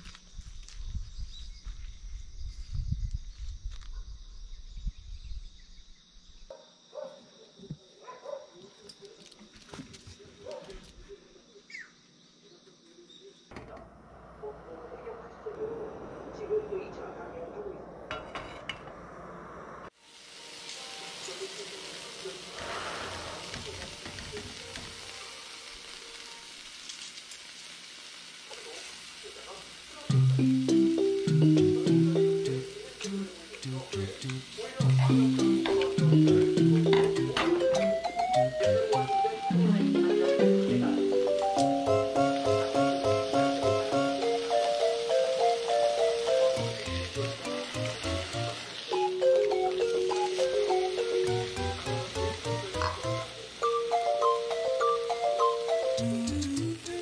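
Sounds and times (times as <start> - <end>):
insects chirring: 0.0 - 57.0
low rumble: 13.8 - 19.9
meat sizzling in a frying pan: 19.9 - 37.4, 40.6 - 57.0.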